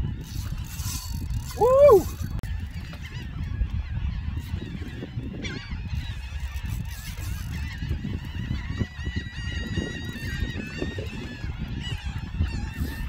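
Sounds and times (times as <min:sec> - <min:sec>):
wind rumbling on microphone: 0:00.0 - 0:13.0
flock of birds calling: 0:02.7 - 0:13.0.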